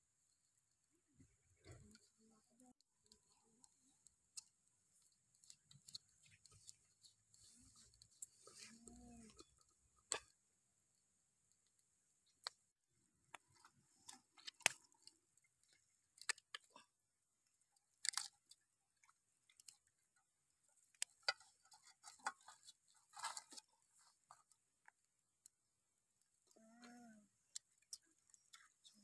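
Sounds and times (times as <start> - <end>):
wet clicks and squishes of hands: 2.7 - 10.4, 11.5 - 12.6, 13.3 - 25.5, 27.5 - 29.0.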